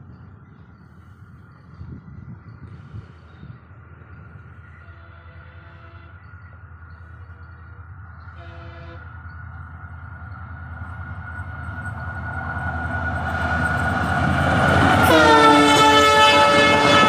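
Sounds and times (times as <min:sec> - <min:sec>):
diesel train rumbling: 0:00.0 - 0:17.0
locomotive horn: 0:04.8 - 0:06.3, 0:08.2 - 0:09.1, 0:14.9 - 0:17.0.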